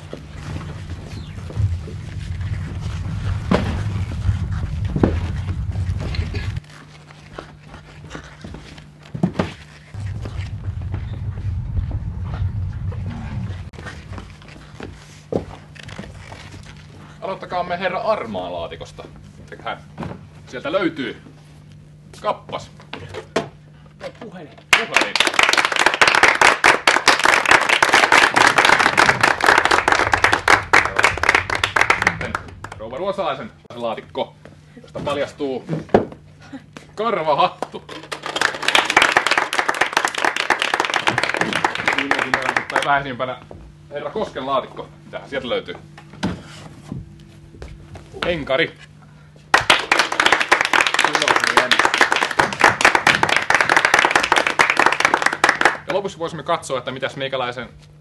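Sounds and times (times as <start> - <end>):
low rumble: 0.0 - 8.1, 9.8 - 16.9, 26.8 - 34.7
audience applauding: 24.7 - 32.9, 37.6 - 43.0, 49.5 - 55.9.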